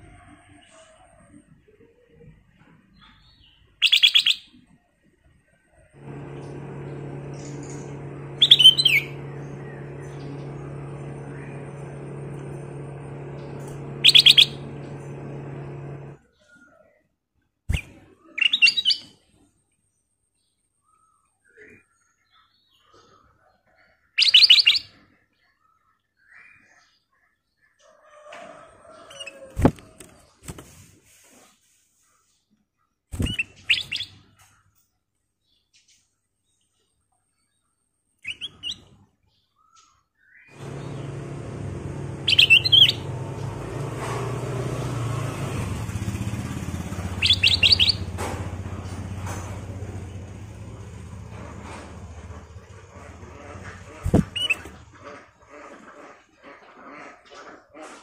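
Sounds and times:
steady low hum: 5.9s - 16.2s, 40.5s - 55.6s
bird chirping: 6.9s - 12.8s, 13.4s - 14.8s, 33.2s - 34.5s, 38.2s - 41.2s, 42.1s - 43.2s, 46.7s - 50.2s, 52.6s - 55.1s
bird singing whistled notes: 38.2s - 38.9s, 47.2s - 48.0s.

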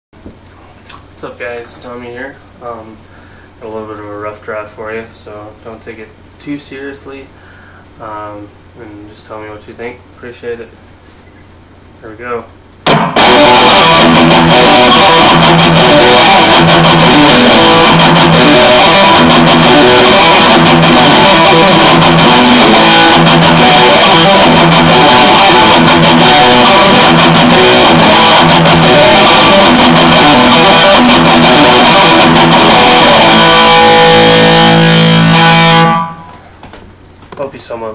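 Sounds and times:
electric guitar riff: 12.8s - 36.6s.

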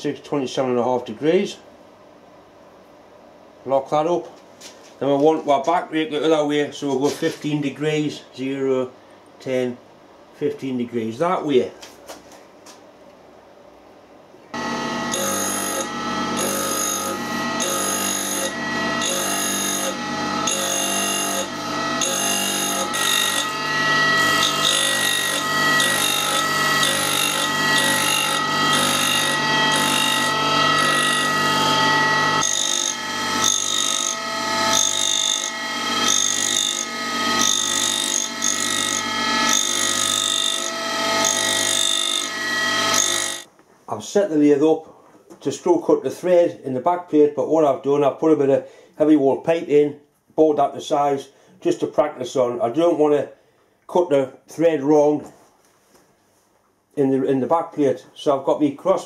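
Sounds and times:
grinder motor humming: 14.6s - 43.5s
tool rasping on grinding wheel: 14.6s - 43.5s.

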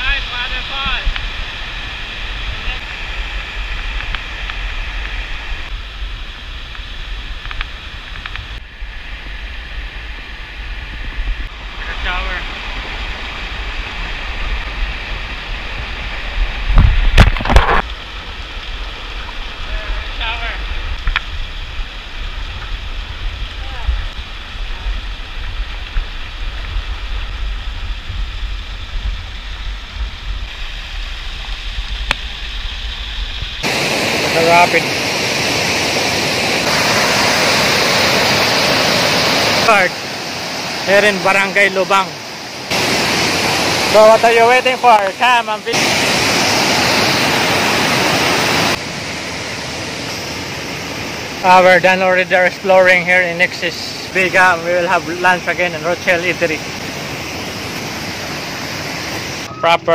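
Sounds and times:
wind buffeting microphone: 0.0s - 40.8s
waterfall pouring and splashing: 0.0s - 59.9s
river rapids rushing: 33.6s - 59.5s.

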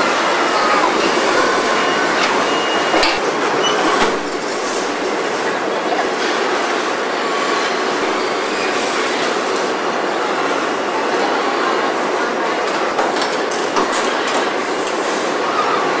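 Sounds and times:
high squeals: 0.0s - 4.4s
assembly line machinery noise: 0.0s - 16.0s.

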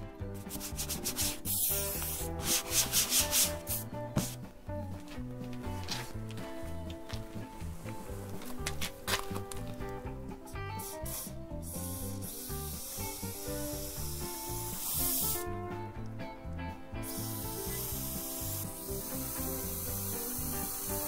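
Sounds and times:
background music: 0.0s - 21.0s
aerosol can spraying: 0.4s - 4.4s, 10.5s - 15.6s, 17.0s - 21.0s.

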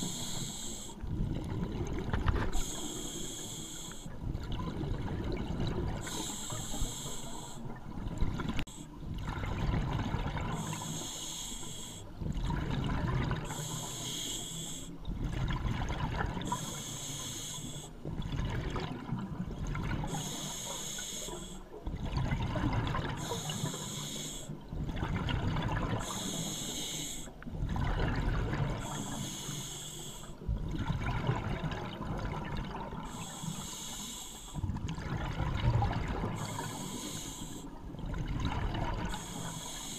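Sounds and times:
regulator breath hiss: 0.0s - 1.0s, 2.5s - 4.1s, 6.0s - 7.7s, 10.6s - 12.1s, 13.5s - 15.0s, 16.5s - 18.0s, 20.1s - 21.7s, 23.2s - 24.6s, 26.0s - 27.3s, 28.8s - 30.4s, 33.1s - 34.6s, 36.4s - 37.7s, 39.1s - 39.9s
exhaled air bubbling underwater: 0.0s - 39.9s.

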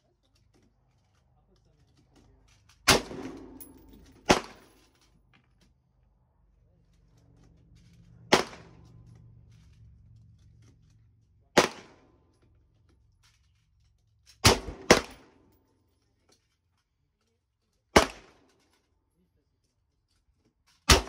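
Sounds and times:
rifle shots: 2.9s - 4.7s, 8.3s - 8.8s, 11.6s - 12.1s, 14.4s - 15.4s, 18.0s - 18.4s.

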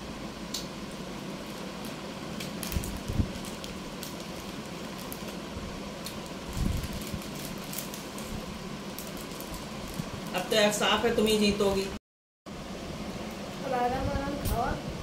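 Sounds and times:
steady background hum: 0.0s - 15.0s
plastic wrappers crinkling: 1.4s - 11.4s.

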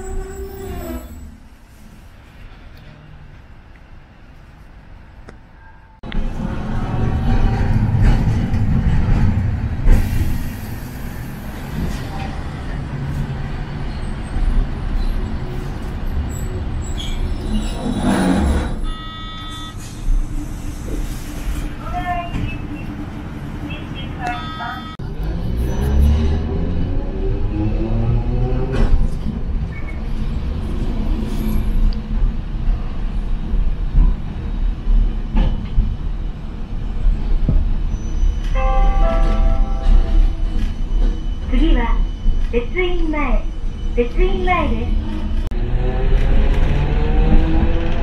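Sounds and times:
tram rumbling on track: 0.0s - 48.0s
short electronic beep: 18.8s - 19.8s, 24.2s - 25.0s.

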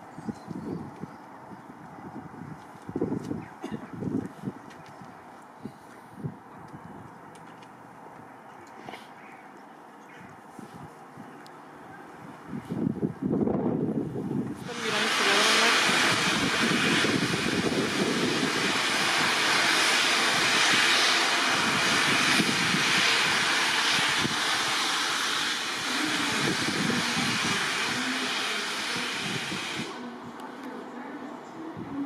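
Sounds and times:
steam locomotive releasing steam: 14.5s - 30.3s.

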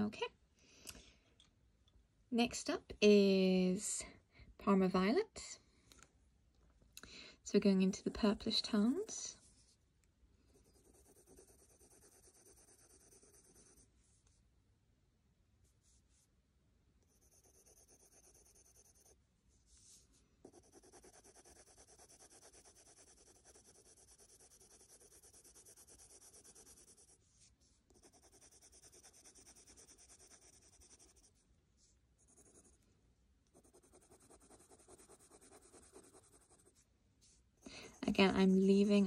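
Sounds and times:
pencil scratching on paper: 10.5s - 13.9s, 17.1s - 19.2s, 19.8s - 27.2s, 27.9s - 31.4s, 32.2s - 32.8s, 33.5s - 36.8s.

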